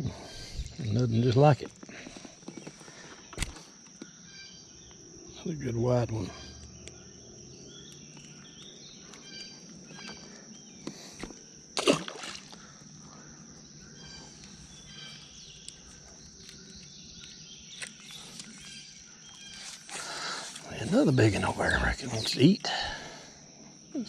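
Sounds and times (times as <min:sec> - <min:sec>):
insects droning: 0:00.0 - 0:24.0
fish splashing into water: 0:11.8 - 0:12.7.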